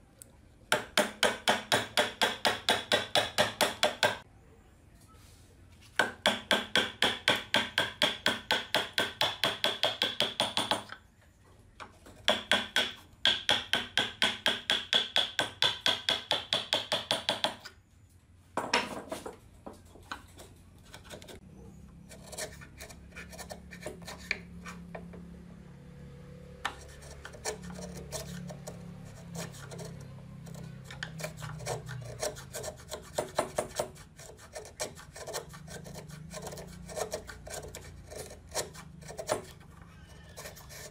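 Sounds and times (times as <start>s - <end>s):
hammer tapping chisel into wood: 0.7s - 4.2s, 6.0s - 11.0s, 12.2s - 17.7s
chisel scraping wood shavings: 22.0s - 24.9s, 26.6s - 40.9s.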